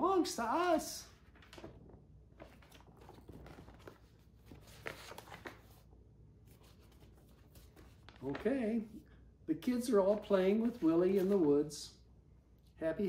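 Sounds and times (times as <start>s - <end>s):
low room hum: 0.0s - 13.0s
book pages rustling: 0.6s - 8.9s, 10.0s - 11.8s.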